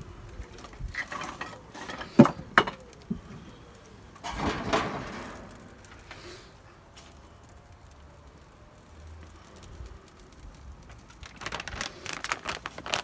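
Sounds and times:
log scraping and clattering: 0.5 - 3.0, 4.2 - 7.2
rustling: 9.2 - 13.0.

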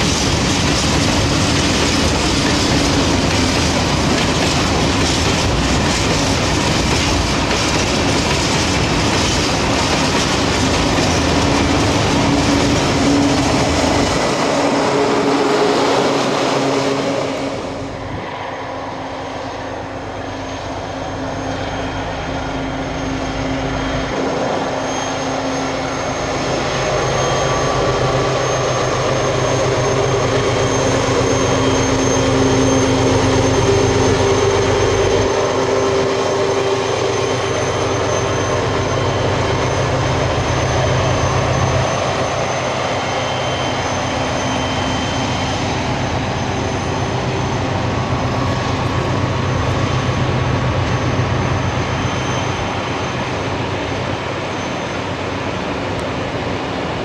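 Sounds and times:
train wheels clattering on rail: 0.0 - 18.0
diesel locomotive engine droning: 0.0 - 57.0.

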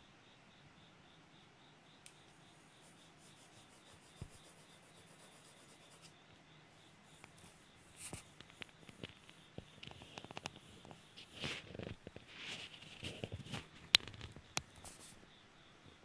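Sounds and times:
pencil scratching on paper: 2.5 - 6.2, 7.2 - 9.8.

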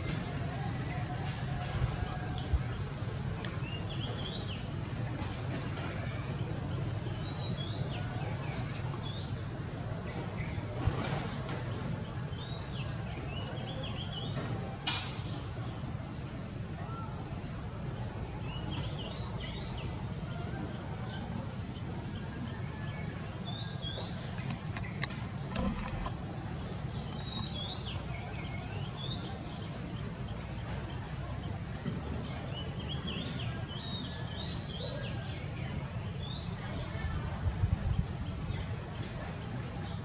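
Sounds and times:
small birds chirping: 23.5 - 31.6.

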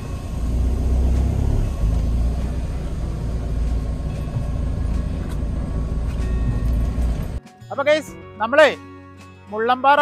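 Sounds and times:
vehicle engine and road noise: 0.0 - 7.4.

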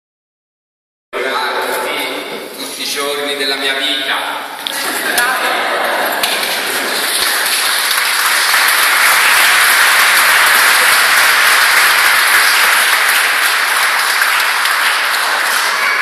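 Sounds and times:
crowd applauding: 4.7 - 16.0.

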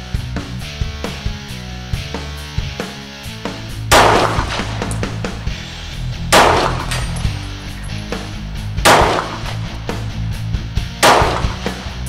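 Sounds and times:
background music: 0.0 - 12.0
pistol shot: 3.9 - 5.4, 6.3 - 7.4, 8.8 - 9.8, 11.0 - 12.0.

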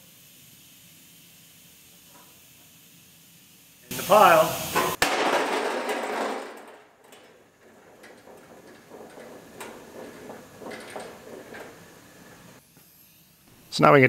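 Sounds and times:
noisy clatter: 4.8 - 12.6.

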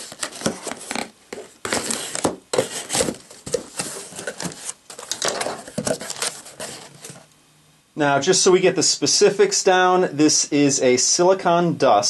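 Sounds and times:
packing paper rustling: 0.0 - 7.3.

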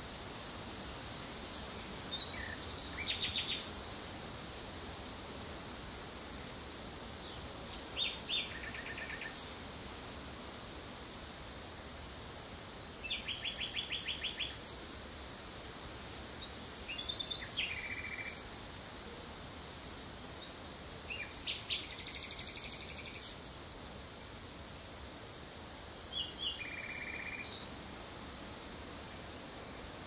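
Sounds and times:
steady background hiss: 0.0 - 30.0
nightingale singing: 2.1 - 3.7, 7.8 - 9.5, 12.8 - 14.8, 16.7 - 18.5, 20.8 - 23.4, 25.7 - 27.7.

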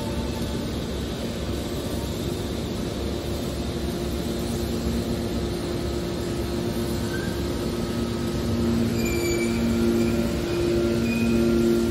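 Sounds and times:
hydraulic baler power unit hum: 0.0 - 11.9
faint high whine: 6.9 - 11.9.

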